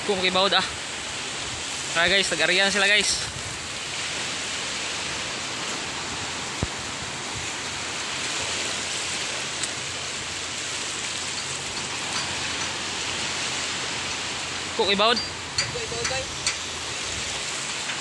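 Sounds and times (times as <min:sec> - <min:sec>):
surf hissing: 0:00.0 - 0:18.0.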